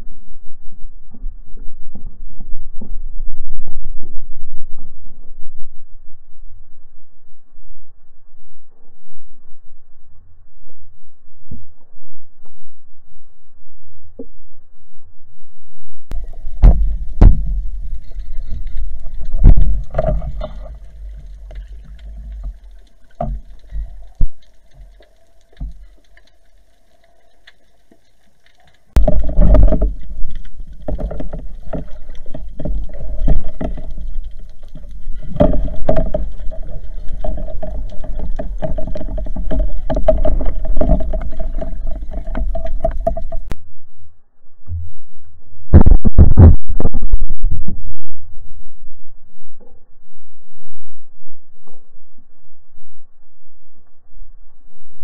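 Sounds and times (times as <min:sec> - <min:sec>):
steady droning tone: 0:00.0 - 0:45.7
underwater rushing water: 0:16.1 - 0:43.6.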